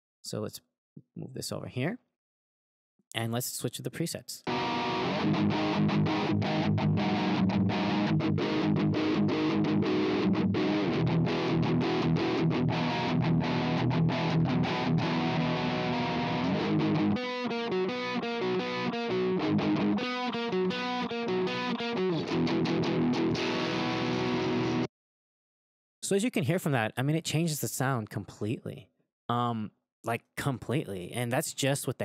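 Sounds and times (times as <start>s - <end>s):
distorted electric guitar: 4.4s - 24.9s.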